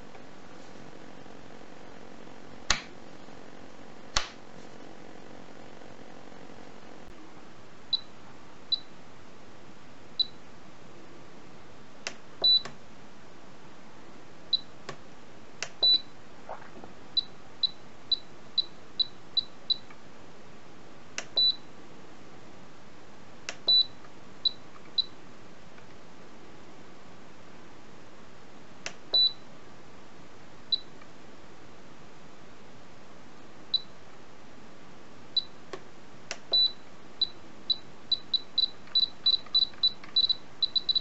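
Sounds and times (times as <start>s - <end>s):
longer beeps: 36.6s - 41.0s.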